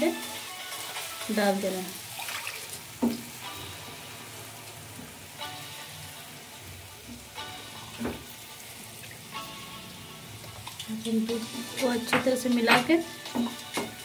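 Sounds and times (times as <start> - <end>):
food sizzling in a pan: 0.0 - 14.0
spatula knocking against pan: 12.0 - 14.0.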